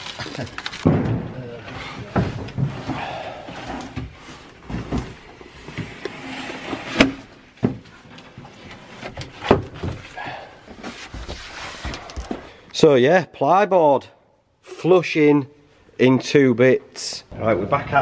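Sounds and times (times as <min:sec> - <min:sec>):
plywood boards scraping: 0:01.6 - 0:12.5.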